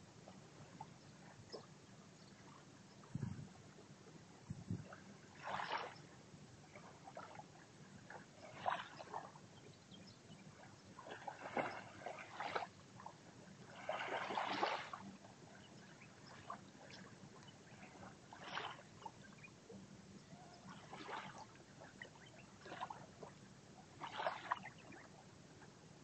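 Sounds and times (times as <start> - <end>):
small waves lapping on shore: 0.0 - 26.0.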